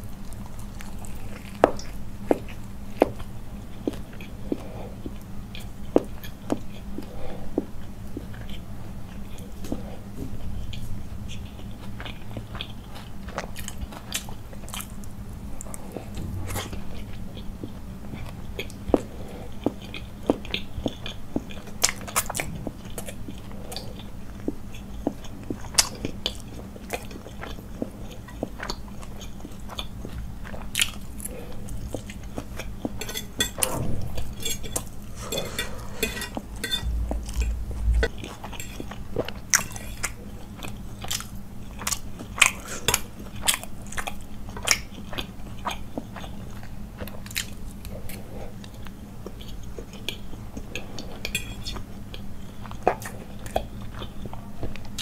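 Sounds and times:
chewing and biting: 0:10.7 - 0:33.9, 0:39.5 - 0:55.0.

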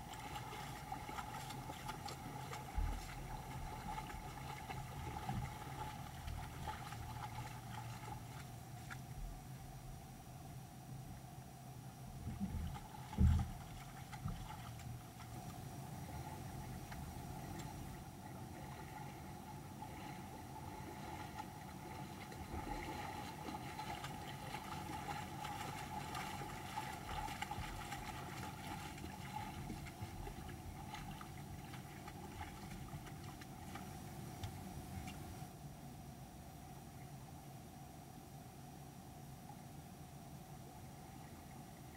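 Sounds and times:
creek running over stones: 0:00.0 - 0:09.1, 0:12.4 - 0:18.6, 0:20.5 - 0:35.4
animals splashing through water: 0:00.0 - 0:09.2, 0:12.3 - 0:35.4.

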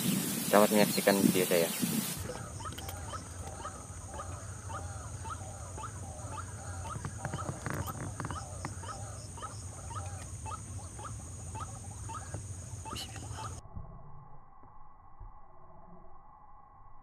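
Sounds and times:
burst of noise: 0:00.0 - 0:03.4
steady high whine: 0:00.0 - 0:17.0
bird calling repeated notes: 0:01.6 - 0:13.6
low hum: 0:02.2 - 0:17.0.

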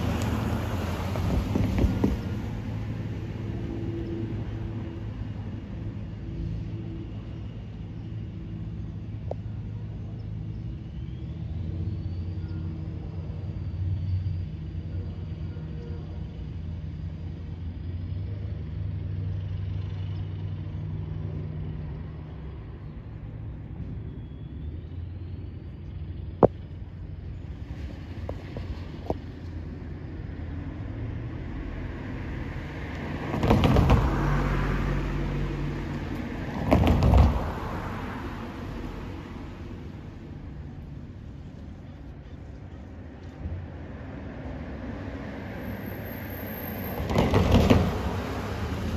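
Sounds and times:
distant diesel locomotive rumble: 0:00.0 - 0:48.9
tyres clunking over rails: 0:47.0 - 0:48.3.

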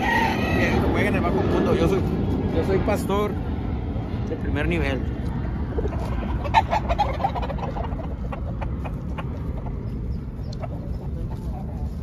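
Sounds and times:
rooster clucking: 0:00.0 - 0:01.0, 0:05.6 - 0:12.0.

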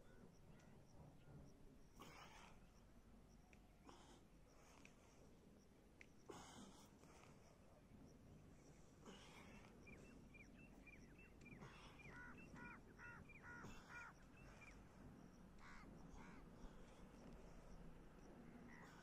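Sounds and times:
harsh bird calls: 0:09.3 - 0:14.8.

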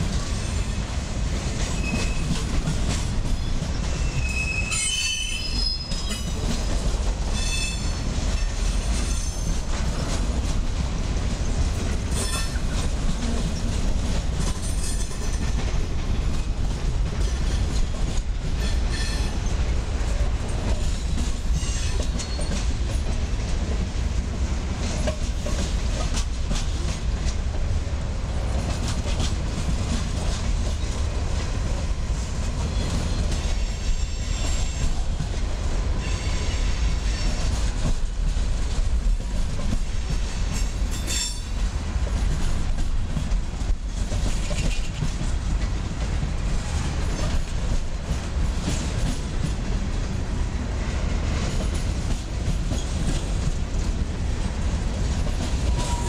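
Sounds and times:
train wheels rumbling on rails: 0:00.0 - 0:56.0
high wheel squeals: 0:03.4 - 0:06.3.

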